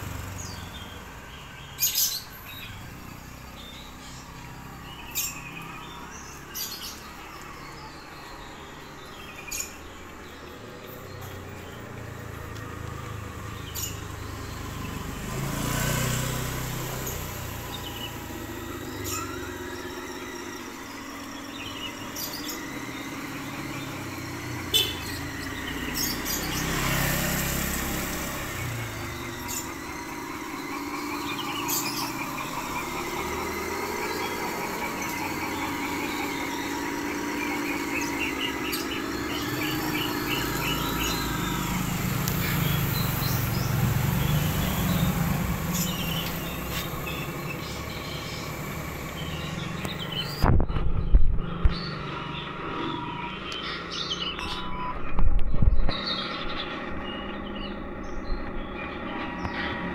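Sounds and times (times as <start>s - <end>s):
toy truck motor whining: 16.2s - 50.5s.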